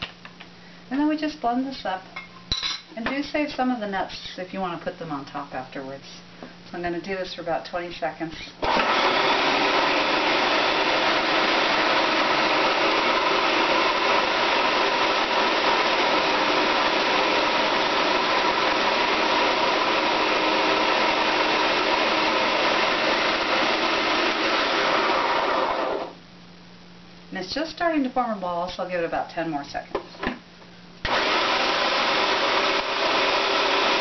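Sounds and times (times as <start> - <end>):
food processor motor running: 8.6 - 26.1, 31.1 - 34.0.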